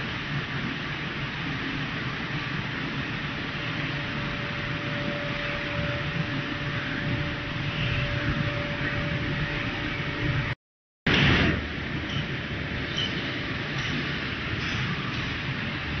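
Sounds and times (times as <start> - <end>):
faint constant tone: 0.0 - 10.6
dryer machine whirring: 1.8 - 10.6.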